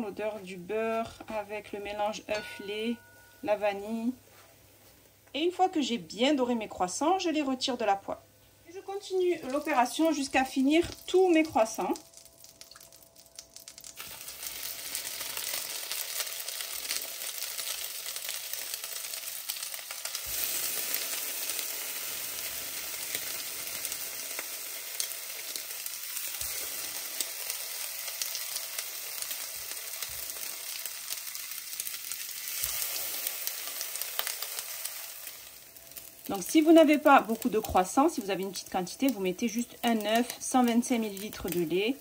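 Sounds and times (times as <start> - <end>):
butter sizzling in frying pan: 8.8 - 42.0.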